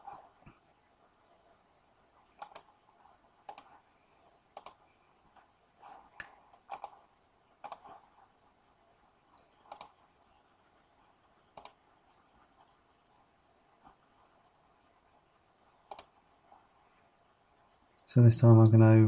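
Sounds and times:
computer mouse clicks: 0:02.4 - 0:02.8, 0:03.4 - 0:08.0, 0:09.6 - 0:10.0, 0:11.5 - 0:11.8, 0:15.8 - 0:16.2.

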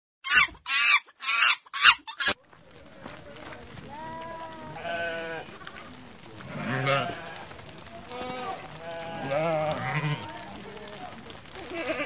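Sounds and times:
soft outdoor background noise: 0:00.2 - 0:12.0
sheep bleating: 0:03.9 - 0:10.8, 0:11.6 - 0:12.0.

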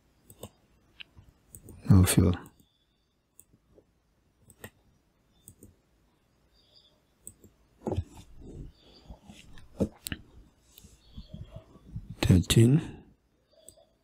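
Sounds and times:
computer mouse clicking: 0:00.2 - 0:01.8, 0:04.4 - 0:05.8, 0:06.6 - 0:08.3.

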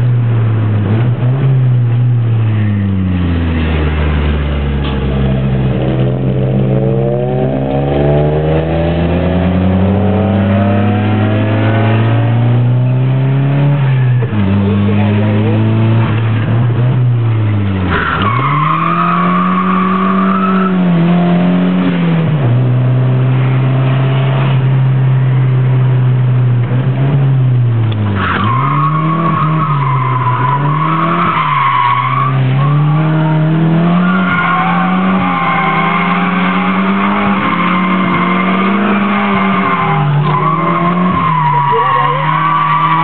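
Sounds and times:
car engine revving: 0:00.0 - 0:43.0
tyres squealing: 0:28.2 - 0:43.0.

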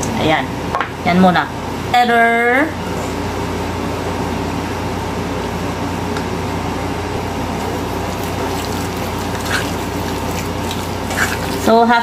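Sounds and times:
motor hum with rushing noise: 0:02.7 - 0:12.0
utensil scraping metal bowl: 0:07.6 - 0:11.8.

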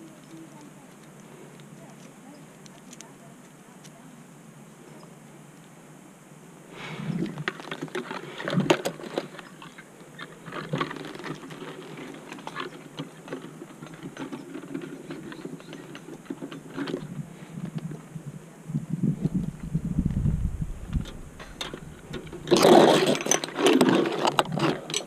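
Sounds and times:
rustling: 0:06.7 - 0:25.0
metal climbing gear clinking: 0:07.1 - 0:17.2, 0:20.9 - 0:25.0.

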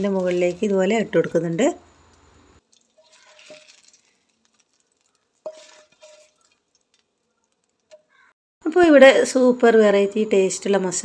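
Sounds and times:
spatula scraping ceramic plate: 0:05.4 - 0:06.5.

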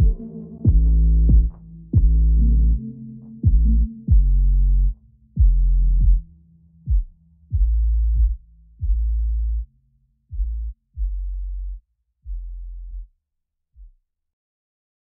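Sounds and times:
long low bass notes: 0:00.0 - 0:13.1.

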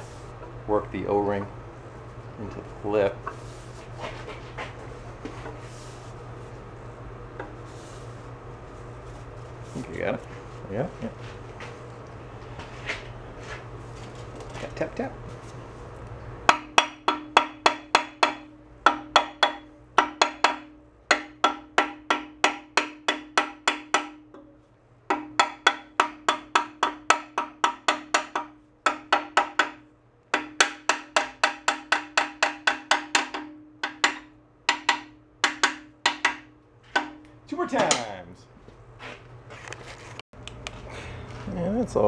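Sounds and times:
hammer tapping on wooden block: 0:16.5 - 0:24.5, 0:25.1 - 0:37.2.

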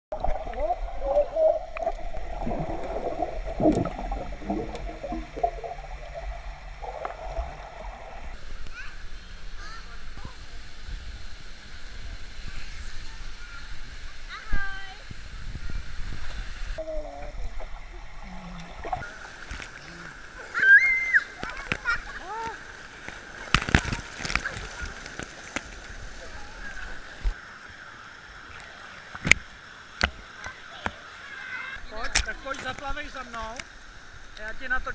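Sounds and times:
water splashing: 0:00.0 - 0:08.5, 0:16.2 - 0:27.4
muffled underwater gurgling: 0:00.1 - 0:08.4
rush of churning water: 0:00.1 - 0:34.9.

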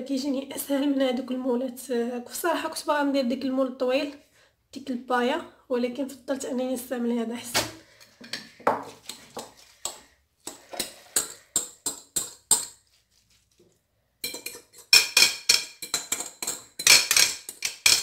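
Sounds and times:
dishware clinking and knocking: 0:14.2 - 0:18.0.

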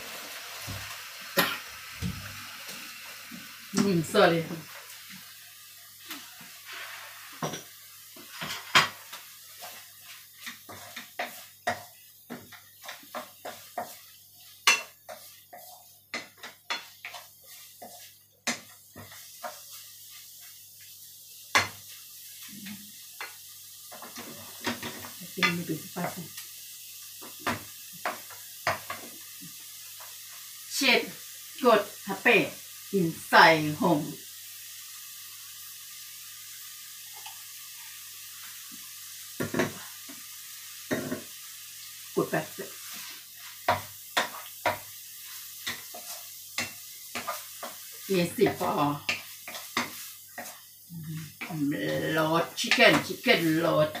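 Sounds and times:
paste sizzling in a pan: 0:00.0 - 0:54.0
wooden spatula scraping metal pan: 0:06.2 - 0:20.3, 0:42.6 - 0:50.6.

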